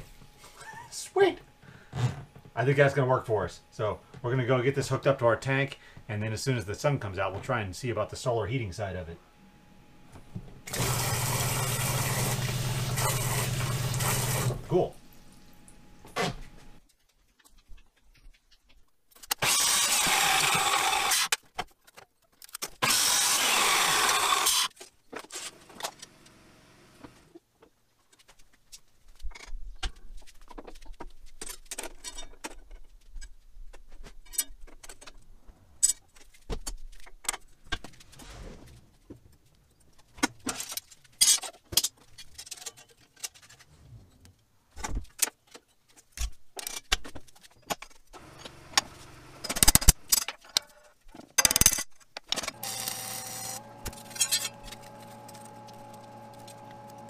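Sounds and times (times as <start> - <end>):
chop saw cutting steel: 19.4 - 21.4, 22.8 - 24.8, 52.5 - 57.0
steel strips clanking: 53.8 - 56.7.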